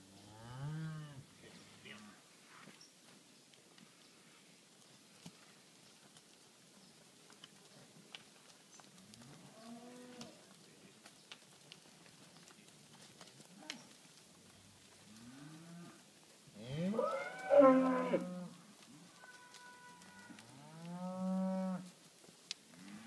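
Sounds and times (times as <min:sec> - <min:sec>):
cows mooing: 0:16.6 - 0:18.6, 0:19.2 - 0:21.8.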